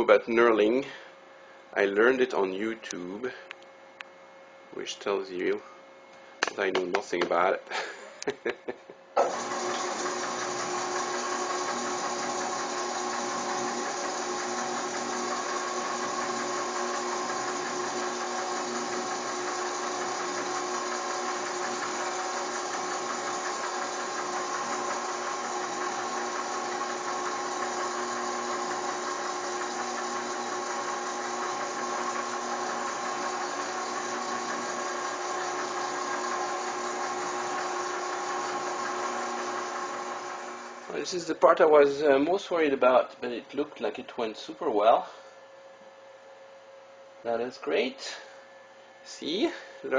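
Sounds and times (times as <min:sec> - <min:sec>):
lathe machine whine: 0:09.2 - 0:41.4.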